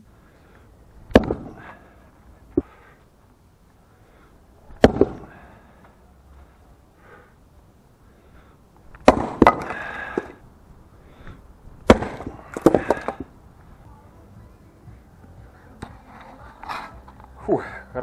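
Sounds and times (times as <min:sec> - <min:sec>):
maul striking log: 0:01.0 - 0:01.8, 0:04.7 - 0:05.4, 0:08.9 - 0:10.4, 0:11.8 - 0:13.3
wood splitting apart: 0:01.1 - 0:01.7, 0:04.7 - 0:05.2, 0:08.9 - 0:10.4, 0:11.8 - 0:13.3.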